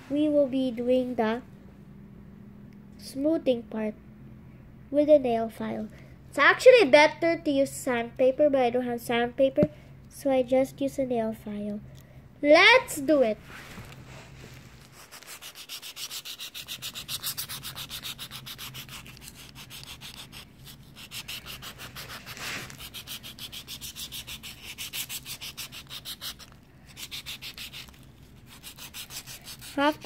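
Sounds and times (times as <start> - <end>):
nail file scratching foil ball: 14.8 - 30.0.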